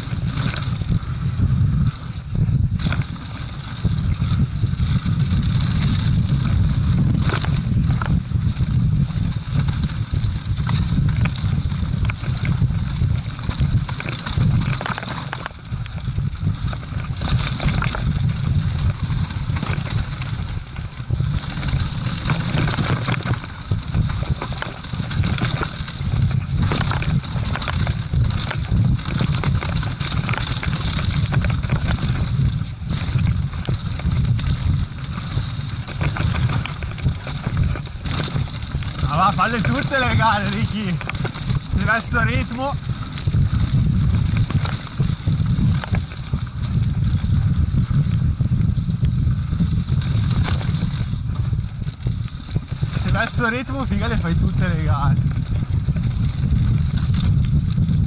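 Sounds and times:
bike knocking and rattling: 0.0s - 58.0s
wind rumble on microphone: 0.0s - 58.0s.

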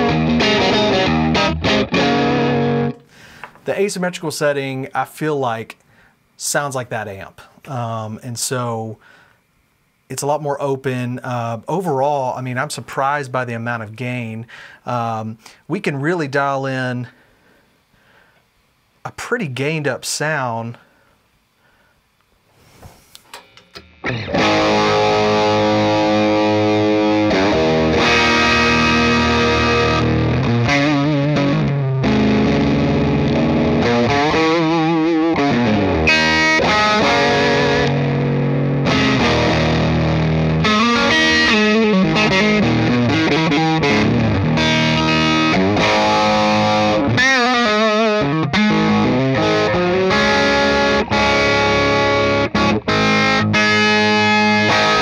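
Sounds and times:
distorted electric guitar: 0.0s - 3.6s, 23.4s - 55.0s.

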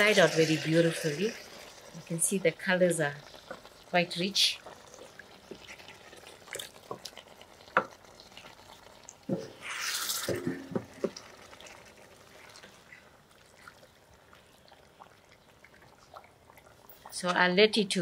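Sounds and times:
chicken sizzling: 0.0s - 17.2s
wooden spoon stirring in a pot: 3.2s - 8.7s.

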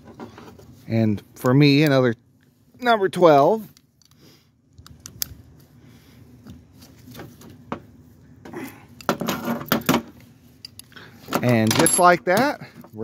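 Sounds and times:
wrenches clicking and scraping: 9.0s - 13.0s.

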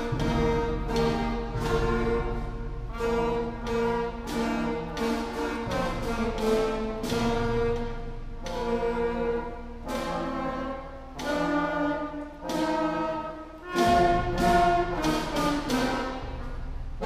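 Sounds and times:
concert band playing: 0.0s - 17.0s.

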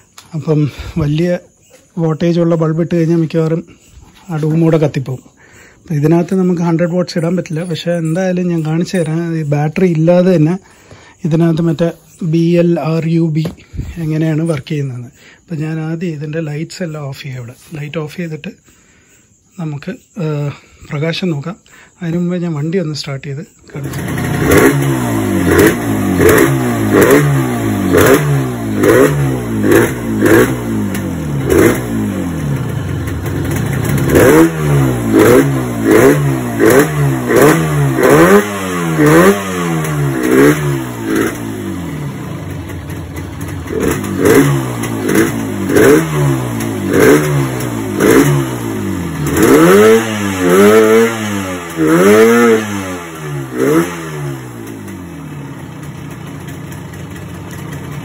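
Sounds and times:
two-stroke motorcycle engine revving: 23.7s - 58.0s.

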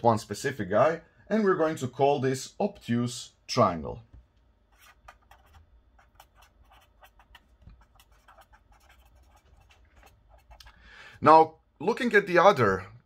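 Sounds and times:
marker scratching on paper: 4.7s - 10.7s.

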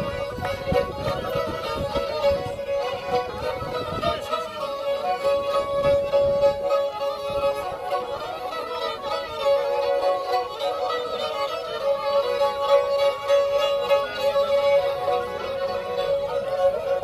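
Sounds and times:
fiddles playing fast folk tune: 0.0s - 17.0s.

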